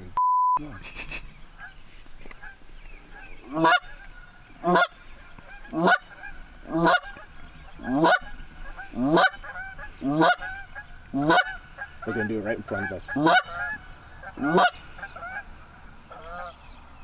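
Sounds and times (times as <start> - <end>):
faint geese honking: 0.6 - 17.0
goose call honks: 3.4 - 15.5.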